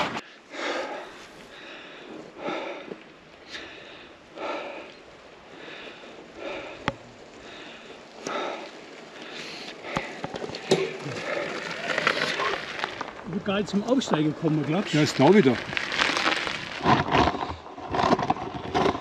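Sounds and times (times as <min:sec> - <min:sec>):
person breathing hard: 0:00.2 - 0:10.3.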